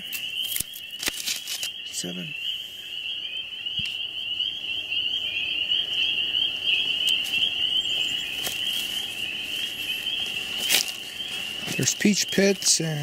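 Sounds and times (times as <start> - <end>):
frogs calling: 0.0 - 13.0.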